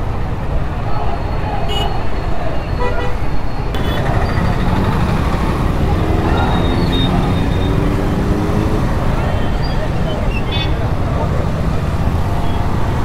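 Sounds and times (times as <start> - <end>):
road traffic rumble: 0.0 - 13.0
motorbikes and scooters passing: 3.8 - 13.0.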